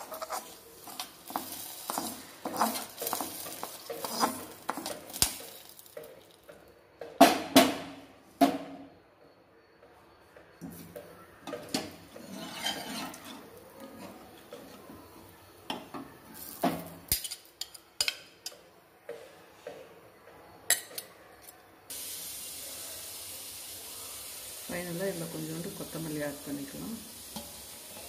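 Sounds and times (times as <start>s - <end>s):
metal spoon scraping a pot: 0.0s - 5.3s, 11.6s - 14.9s
steady hiss: 21.9s - 28.0s.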